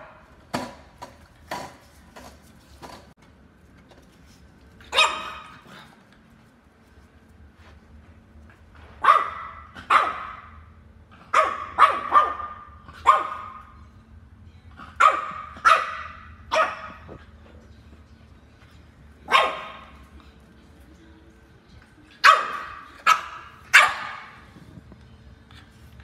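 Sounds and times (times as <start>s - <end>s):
dog barking: 4.9s - 5.6s, 9.0s - 10.6s, 11.3s - 13.7s, 14.9s - 17.2s, 19.3s - 20.0s, 22.2s - 24.4s.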